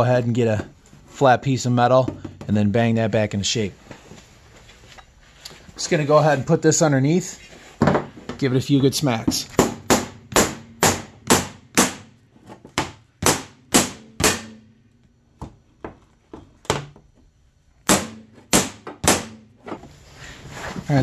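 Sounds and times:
hammer striking metal: 9.6s - 12.2s, 12.8s - 14.8s, 17.9s - 19.5s.

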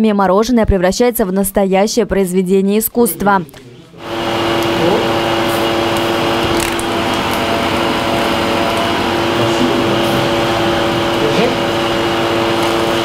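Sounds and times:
electric motor humming: 4.0s - 13.0s.

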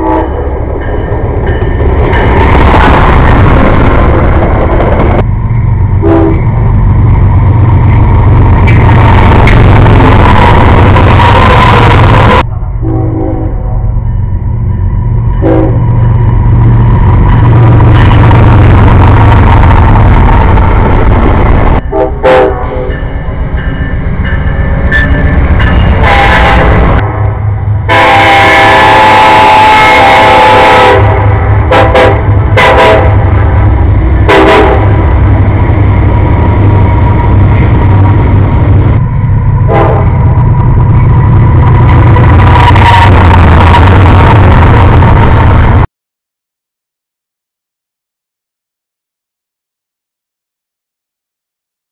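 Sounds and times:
train horn toot: 0.0s - 0.4s, 6.0s - 6.5s, 10.4s - 13.9s, 15.4s - 15.9s, 21.9s - 23.1s, 26.0s - 33.4s, 34.2s - 35.1s, 39.6s - 40.2s, 42.5s - 44.0s
wheel and rail noise: 0.0s - 28.0s
freight train rumble: 0.0s - 45.9s.

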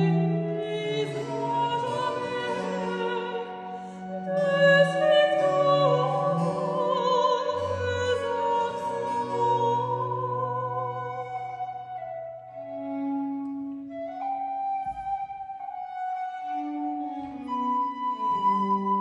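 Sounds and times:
soprano singing with vibrato: 0.0s - 11.8s
cello: 0.0s - 19.0s
wooden flute: 0.0s - 19.0s.

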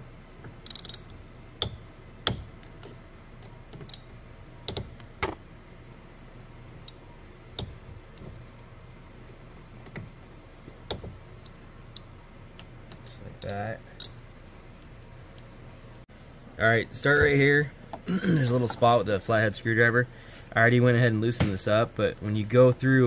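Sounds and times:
light metallic clicks and taps: 12.9s - 14.2s.

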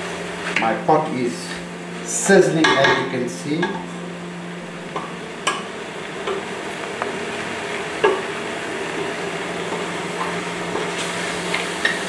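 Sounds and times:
meat sizzling in a pot: 4.9s - 12.0s.

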